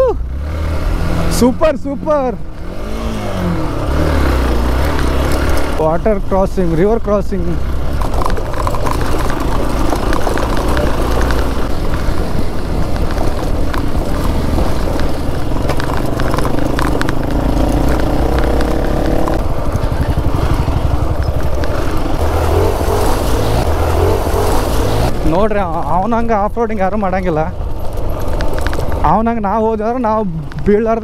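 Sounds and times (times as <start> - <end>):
motorcycle engine running: 0.0 - 31.0
knocks and rattles: 7.6 - 25.1, 27.2 - 29.4.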